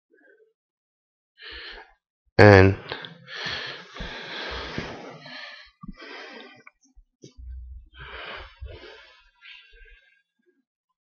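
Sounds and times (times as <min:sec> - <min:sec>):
person breathing softly: 0:01.4 - 0:01.9, 0:02.9 - 0:06.8, 0:07.6 - 0:10.2.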